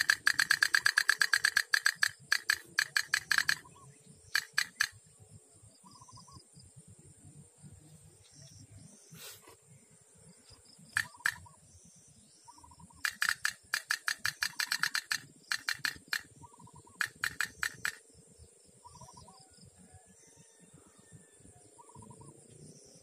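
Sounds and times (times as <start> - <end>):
sharp clicks: 0.0 - 3.7, 4.3 - 5.0, 10.9 - 11.5, 13.0 - 18.0
high-pitched insect drone: 0.0 - 5.1, 10.9 - 11.6, 12.7 - 19.4.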